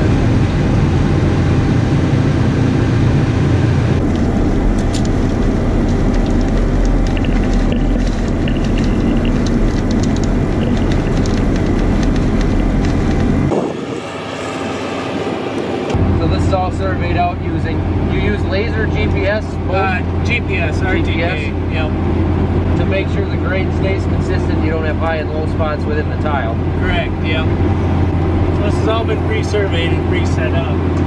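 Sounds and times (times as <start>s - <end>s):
diesel engine running under load: 0.0s - 31.0s
rapid clicks and rattles: 4.0s - 13.6s.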